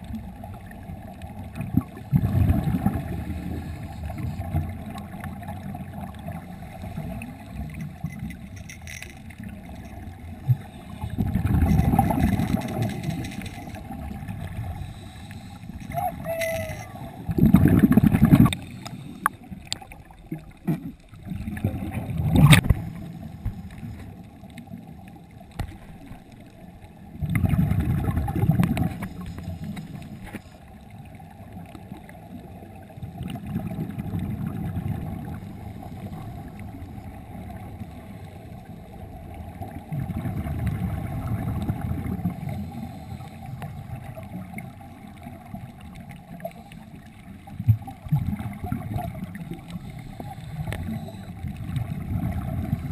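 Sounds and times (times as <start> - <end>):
low underwater background: 0.0 - 52.9
regulator bubbles bursting: 1.5 - 3.4, 15.9 - 18.6, 27.2 - 29.1.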